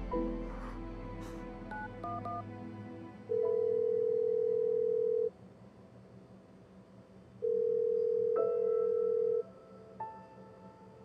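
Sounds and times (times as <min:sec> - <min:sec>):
soft music notes: 0:00.0 - 0:04.1
telephone ringback tone: 0:03.3 - 0:05.3, 0:07.4 - 0:09.4.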